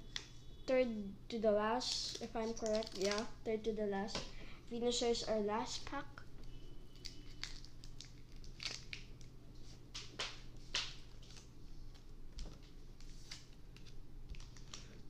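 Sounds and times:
packaging crinkling: 0:01.9 - 0:03.3, 0:06.9 - 0:09.4, 0:10.8 - 0:15.0.

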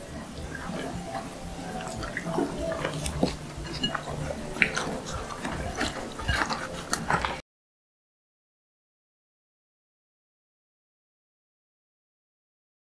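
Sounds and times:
spoon clicking against dishes: 0:01.9 - 0:07.4.

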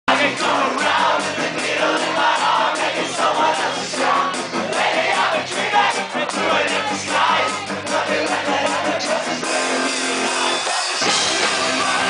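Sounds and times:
drums: 0:00.1 - 0:12.0
electric bass: 0:00.1 - 0:12.0
person singing: 0:00.1 - 0:12.0
electric guitar: 0:03.0 - 0:12.0.

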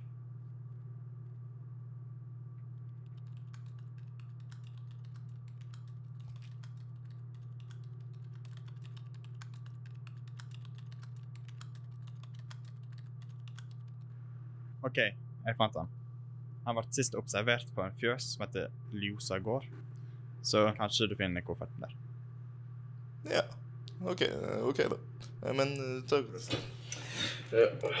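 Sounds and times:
steady low hum: 0:00.0 - 0:28.0
typing on laptop keyboard: 0:03.0 - 0:14.0.

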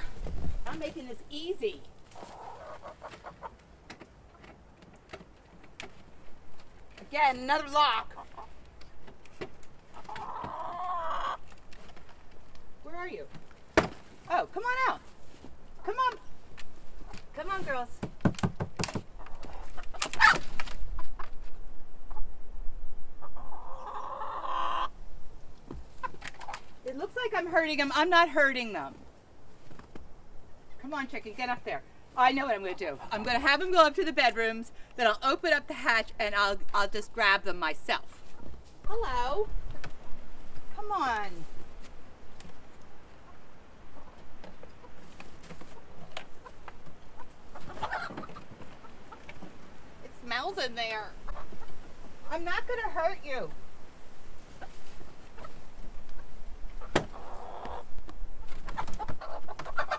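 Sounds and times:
hens clucking and squawking: 0:02.0 - 0:04.7, 0:07.5 - 0:09.0, 0:09.6 - 0:11.6, 0:19.1 - 0:22.4, 0:23.1 - 0:25.0, 0:25.8 - 0:27.3, 0:43.0 - 0:49.8, 0:51.1 - 0:53.0, 0:54.4 - 0:59.9
knocks on wooden coop: 0:18.0 - 0:19.1.

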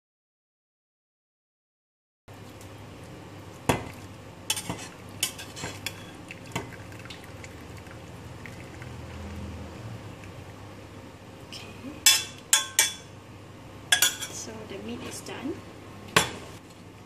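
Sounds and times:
liquid trickling into bowl: 0:06.0 - 0:09.6.

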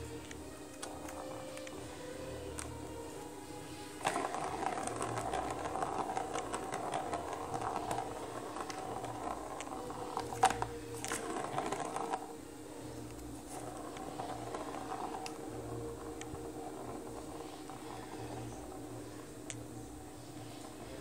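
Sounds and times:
plastic ball rolling and rattling: 0:00.0 - 0:21.0
paws knocking plastic toy: 0:04.0 - 0:12.3.

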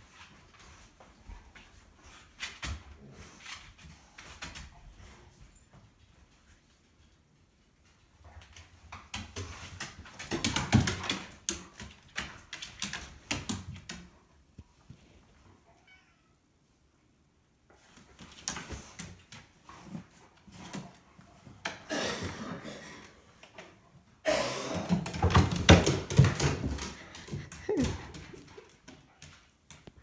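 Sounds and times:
dog claws clicking on stairs: 0:08.4 - 0:14.2, 0:24.9 - 0:30.0.

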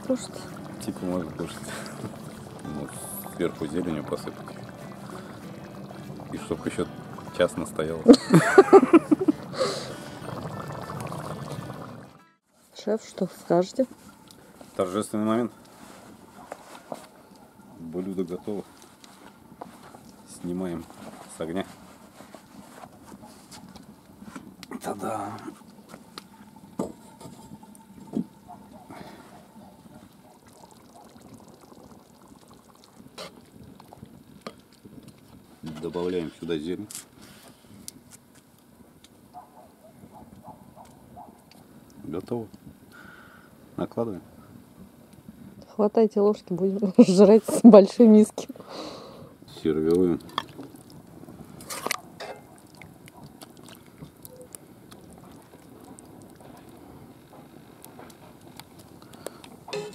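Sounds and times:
thick stew sloshing: 0:00.0 - 0:12.2, 0:49.6 - 0:59.0
metal ladle scraping pot: 0:51.6 - 0:52.5, 0:59.7 - 0:59.9
metal ladle stirring stew: 0:59.7 - 0:59.9
pot lid coming off: 0:59.7 - 0:59.9.

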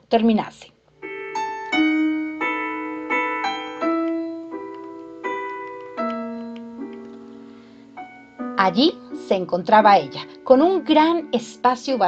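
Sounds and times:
slow solo piano music: 0:01.0 - 0:09.5.

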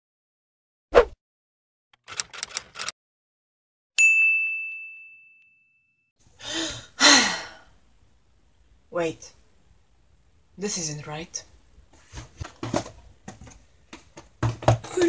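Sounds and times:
short swish: 0:00.9 - 0:01.2
quick clicks: 0:02.0 - 0:02.9
high bell-like ding: 0:04.0 - 0:06.1.

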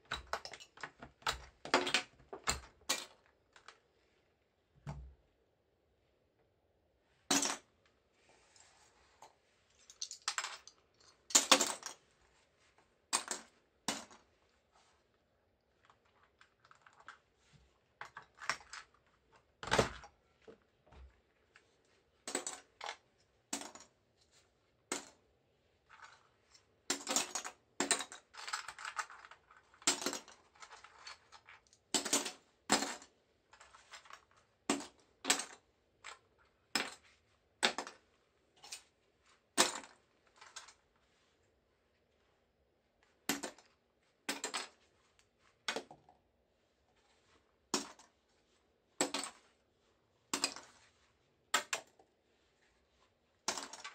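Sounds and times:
soft rustling: 0:07.9 - 0:10.0, 0:36.3 - 0:53.9.

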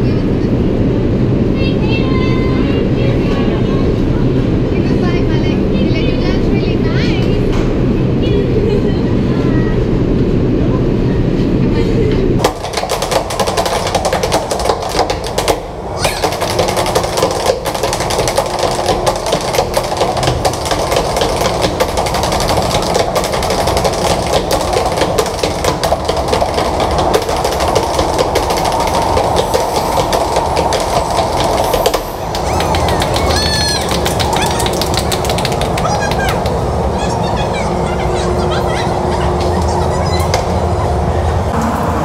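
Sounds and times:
subway station rumble: 0:00.0 - 0:42.0
tap shoes on wooden boards: 0:12.4 - 0:36.6.

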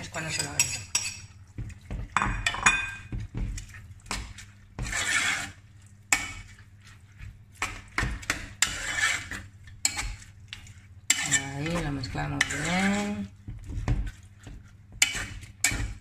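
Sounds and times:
utensil scraping pot: 0:00.0 - 0:16.0
metal utensil clinking on pot: 0:00.2 - 0:01.3, 0:02.2 - 0:03.1, 0:11.1 - 0:13.2.

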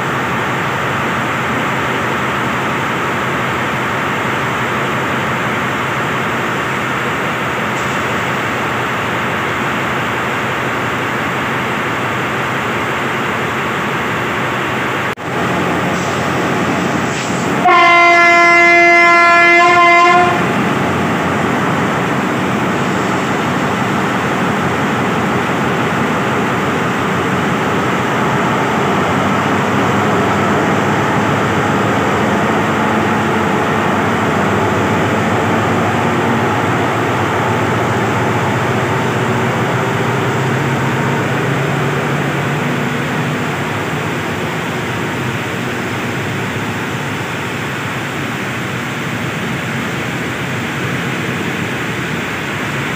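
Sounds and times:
diesel locomotive running: 0:00.0 - 0:52.9
heavy rain: 0:15.2 - 0:28.2
locomotive horn: 0:17.6 - 0:20.6.

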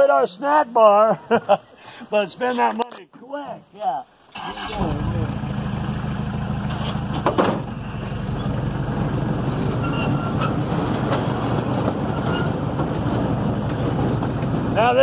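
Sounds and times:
small train engine and wheel rumble: 0:04.4 - 0:15.0
short train clatter: 0:09.6 - 0:14.8.

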